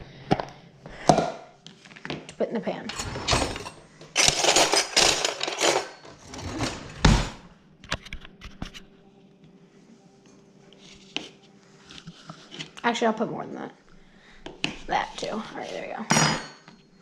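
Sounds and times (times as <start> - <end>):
cutlery rattling in drawer: 2.9 - 7.4.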